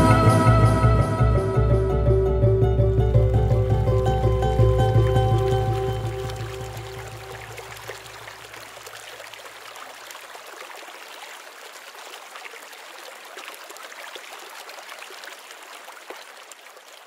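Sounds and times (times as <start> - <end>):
low closing music: 0.0 - 7.9
stream babbling: 0.0 - 17.0.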